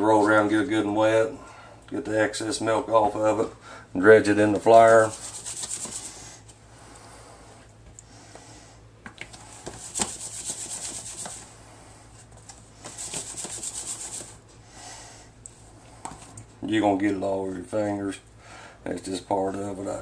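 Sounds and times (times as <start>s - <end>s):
meat scraping through flour: 4.8s - 6.2s, 9.6s - 11.5s.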